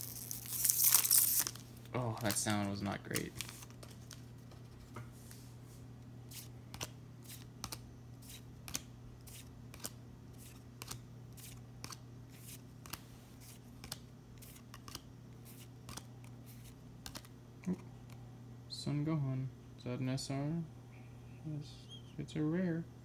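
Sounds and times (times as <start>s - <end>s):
faint low hum: 0.0s - 23.0s
trading cards flicked snapping: 6.7s - 10.0s, 13.8s - 15.0s, 17.0s - 17.3s.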